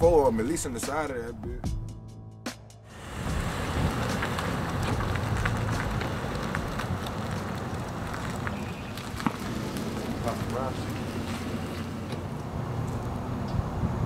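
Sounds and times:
car driving past: 0:02.9 - 0:13.9
wind on microphone: 0:03.0 - 0:09.2, 0:13.4 - 0:14.0.

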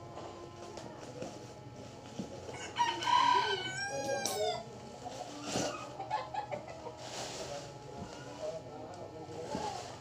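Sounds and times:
rooster crowing: 0:02.5 - 0:04.6.

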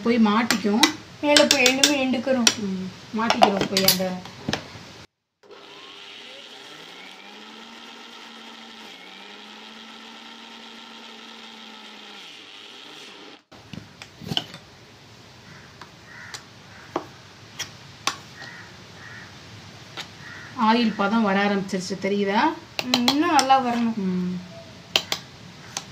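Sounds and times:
mixer grinder motor running: 0:05.4 - 0:13.5.

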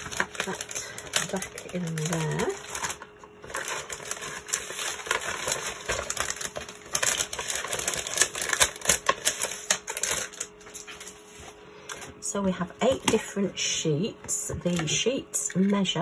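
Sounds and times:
paper and plastic packaging crackling: 0:00.0 - 0:13.6.

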